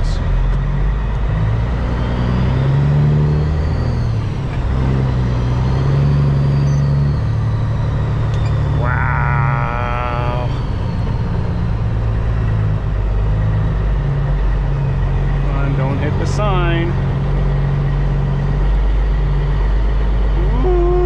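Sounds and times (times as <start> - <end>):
truck diesel engine under load: 0.0 - 21.0
wavering high-pitched sound: 8.8 - 10.6.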